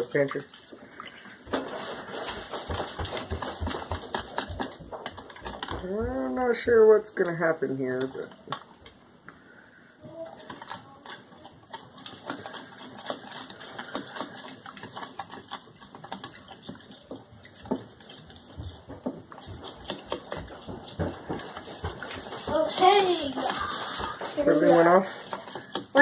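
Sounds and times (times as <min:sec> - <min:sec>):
whisk clicking against bowl: 0:10.4 - 0:26.0.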